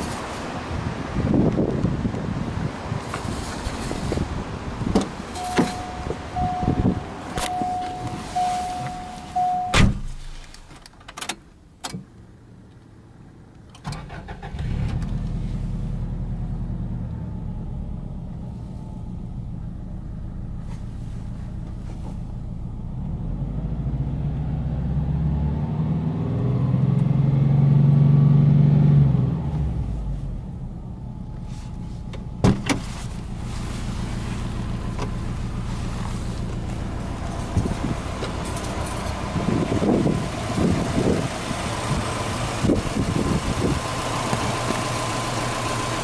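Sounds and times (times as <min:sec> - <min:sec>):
car engine revving steadily: 0:00.0 - 0:10.5, 0:14.8 - 0:46.0
car engine starting and idling: 0:00.0 - 0:46.0
car door shutting: 0:04.8 - 0:12.1, 0:32.1 - 0:35.4
car warning chime beeping: 0:05.3 - 0:10.0.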